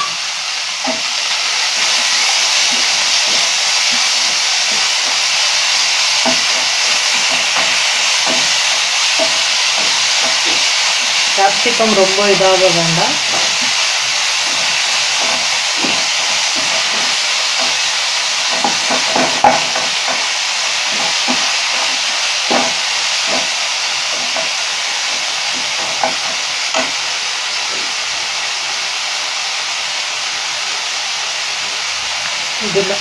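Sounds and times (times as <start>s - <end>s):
vegetables sizzling in hot oil: 0.0s - 33.0s
spoon knocking against pan: 0.8s - 11.7s, 13.2s - 27.0s.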